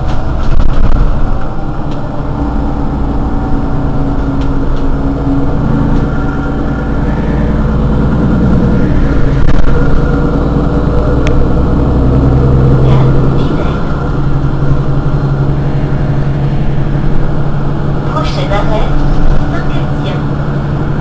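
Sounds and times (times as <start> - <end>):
bus diesel engine idling: 0.0 - 21.0.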